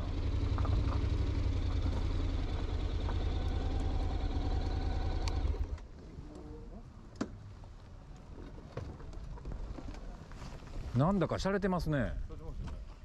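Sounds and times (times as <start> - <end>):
motorcycle engine idling: 0.0 - 5.8.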